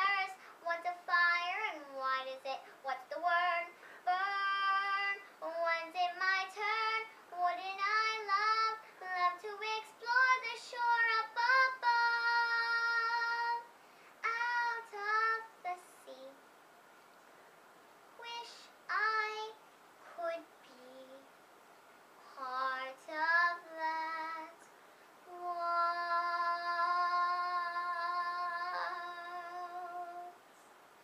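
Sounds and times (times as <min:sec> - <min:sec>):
girl singing in a high voice: 0:00.0 - 0:16.4, 0:18.2 - 0:21.3, 0:22.2 - 0:30.5.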